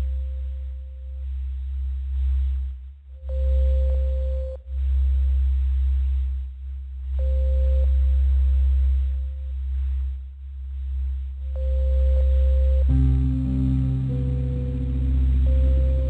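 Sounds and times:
deep steady drone: 0.0s - 16.0s
pure mid-pitched tone: 11.6s - 16.0s.

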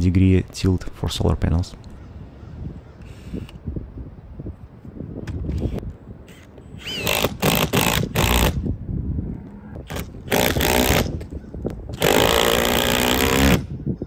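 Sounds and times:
cordless drill bursts: 5.6s - 8.6s, 9.9s - 11.1s, 12.0s - 13.6s.

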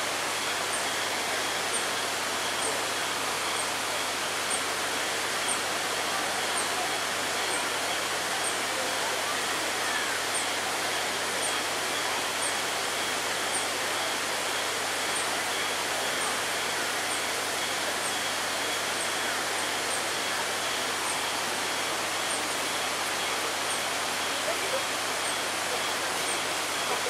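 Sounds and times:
steady outdoor hiss: 0.0s - 27.0s.

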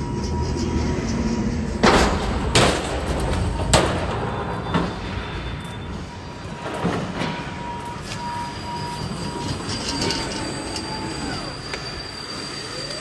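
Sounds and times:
noisy hum: 0.0s - 11.2s
high machine whine: 0.0s - 13.0s
squeal falling in pitch: 8.3s - 13.0s.

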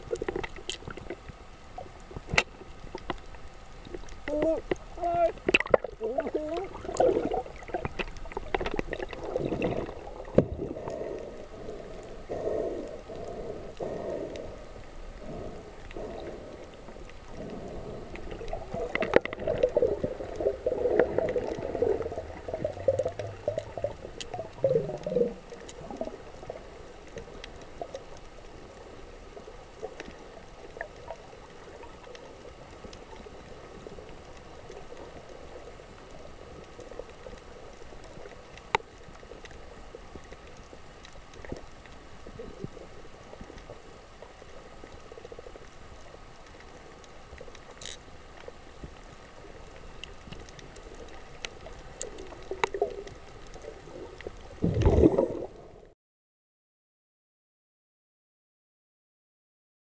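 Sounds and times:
underwater gurgling and sloshing: 0.0s - 56.0s
sharp underwater clicks: 2.0s - 11.3s, 49.7s - 55.4s.

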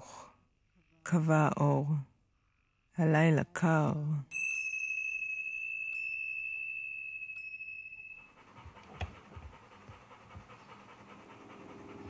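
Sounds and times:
high chime-like tone: 4.3s - 8.4s
dog panting softly: 8.2s - 12.0s.

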